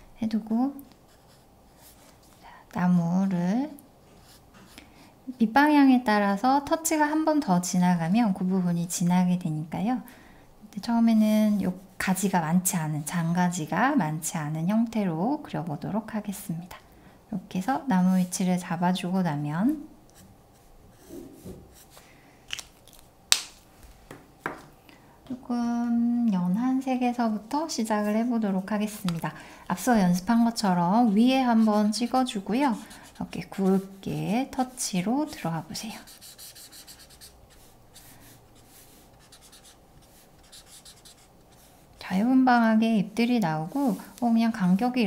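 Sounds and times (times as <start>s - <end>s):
marker strokes on paper: 30.2s - 42.1s.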